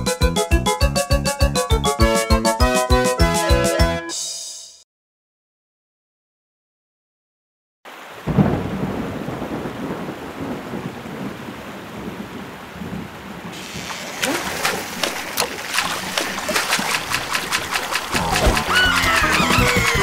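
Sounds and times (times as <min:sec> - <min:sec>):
heavy rain on water: 0:07.9 - 0:20.0
thunder clap: 0:08.2 - 0:13.6, 0:15.8 - 0:20.0.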